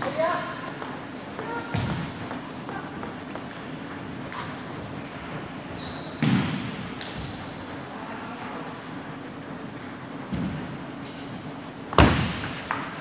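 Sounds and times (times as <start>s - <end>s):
short high squeaks: 5.6s - 6.2s, 7.0s - 8.0s.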